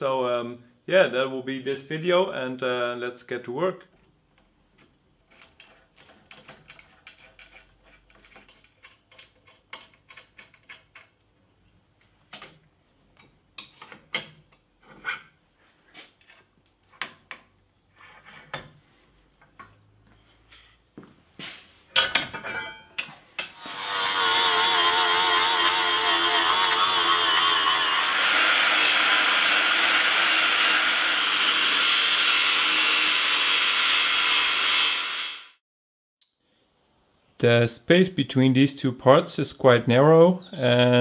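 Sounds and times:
angle grinder running: 23.5 - 35.6.

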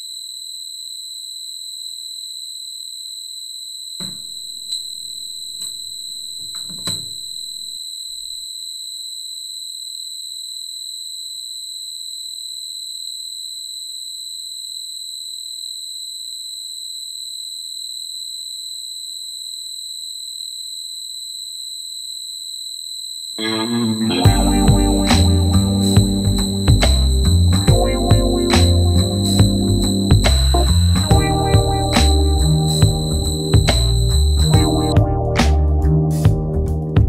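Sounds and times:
high-pitched electronic tone: 23.4 - 35.0.

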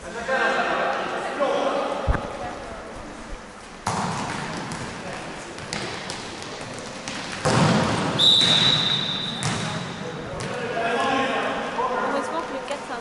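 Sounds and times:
voices and shouts in a hall: 0.0 - 13.0
basketball thuds: 3.8 - 4.9, 5.6 - 10.6
referee's whistle: 8.2 - 9.5.

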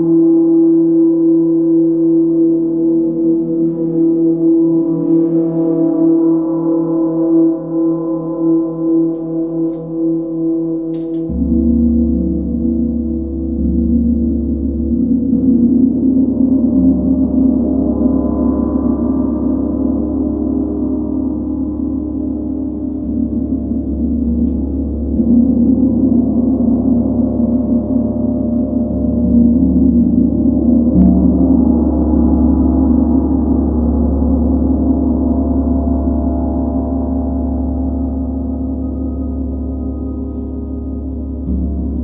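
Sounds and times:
large gong ringing: 3.3 - 42.0.

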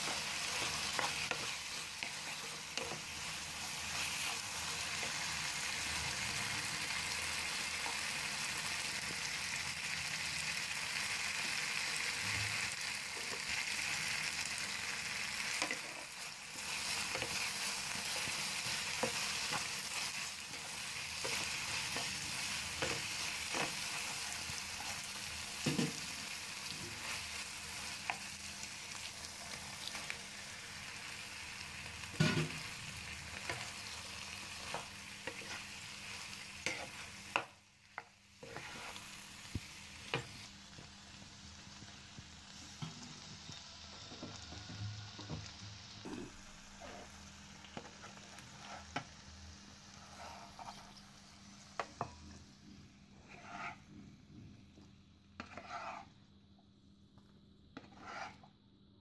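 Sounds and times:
vegetables sizzling in a frying pan: 0.0 - 56.2, 57.8 - 58.4
spatula scraping and knocking pan: 33.4 - 40.4, 50.0 - 51.0, 53.2 - 56.2, 57.8 - 58.5.

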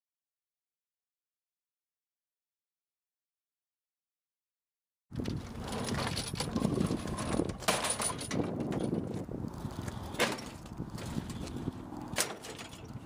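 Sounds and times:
rattling and knocking: 5.6 - 9.1.

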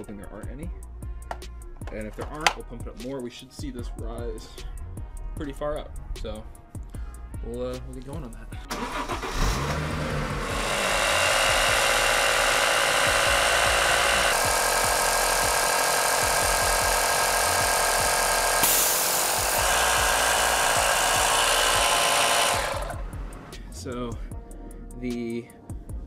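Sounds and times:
air compressor running: 8.7 - 23.5
high air hiss: 18.6 - 20.1.

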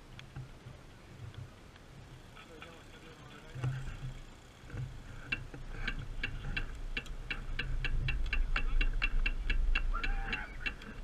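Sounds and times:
bicycle freehub ticking: 2.2 - 11.0.

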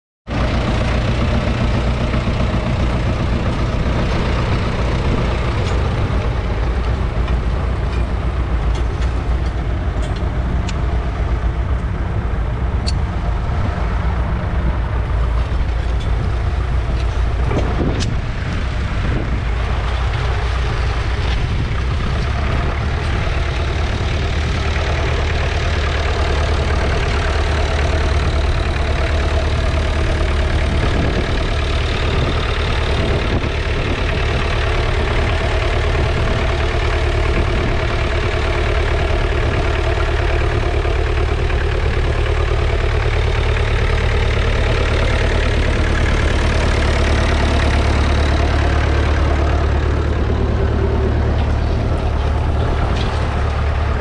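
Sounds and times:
engine knock: 0.3 - 13.5, 14.1 - 54.0
diesel engine running: 0.3 - 54.0.

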